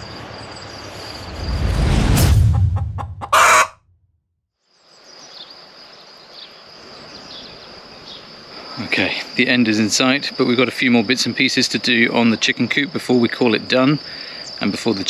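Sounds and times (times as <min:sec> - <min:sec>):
crickets trilling: 0:00.0 - 0:01.9, 0:04.6 - 0:15.0
low rumble: 0:01.1 - 0:03.3.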